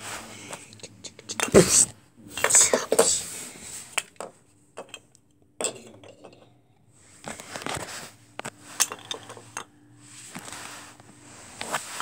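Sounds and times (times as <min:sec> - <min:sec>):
toy train clinking and knocking: 0:04.2 - 0:05.0, 0:08.8 - 0:09.7.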